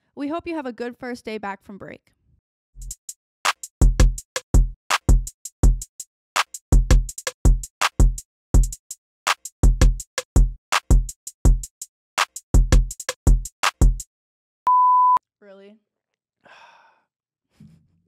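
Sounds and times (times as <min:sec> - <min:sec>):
drum machine beat: 0:03.6 - 0:05.9, 0:06.8 - 0:08.8, 0:09.4 - 0:14.1.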